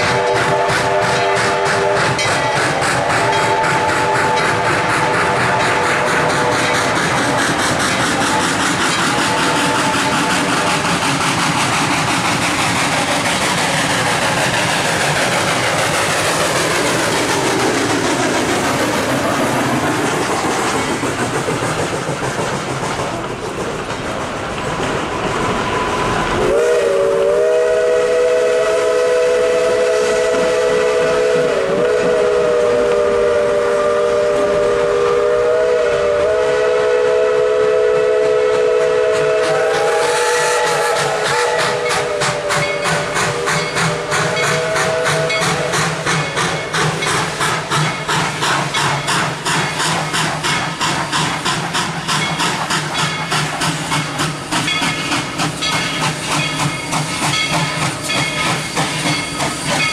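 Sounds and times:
steam whistle chord: 0:00.0 - 0:07.3, 0:25.8 - 0:45.8
train wheels clattering: 0:00.0 - 0:59.9.

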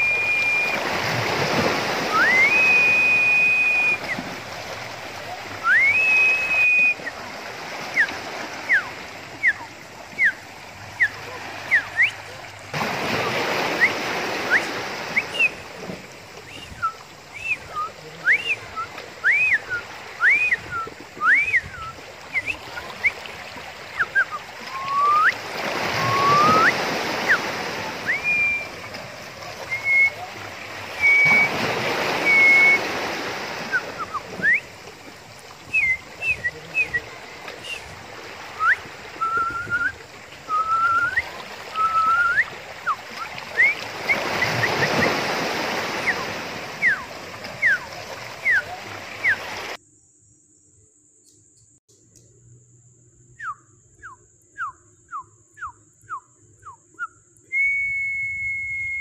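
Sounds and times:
short high rising whistles: 0:00.0 - 0:01.0, 0:02.0 - 0:04.3, 0:05.6 - 0:07.2, 0:23.9 - 0:28.9, 0:30.9 - 0:34.8, 0:38.6 - 0:49.5, 0:53.4 - 0:59.0
surf rushing between rocks: 0:00.0 - 0:49.8.

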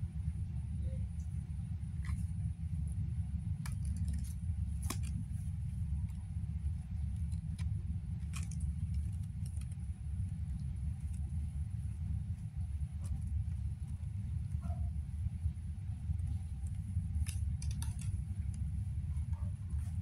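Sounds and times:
steady low rumble: 0:00.0 - 0:20.0
claws clicking on bamboo basket: 0:03.4 - 0:11.4, 0:16.1 - 0:18.8.

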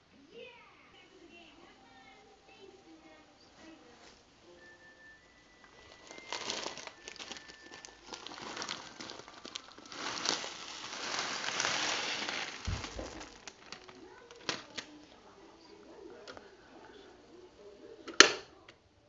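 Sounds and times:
dry granules poured into water: 0:05.8 - 0:13.9.

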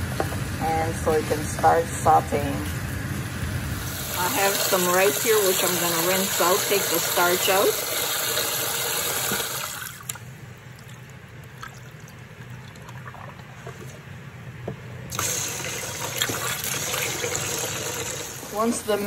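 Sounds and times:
tap water running into bowl: 0:04.0 - 0:10.2, 0:15.1 - 0:18.5.

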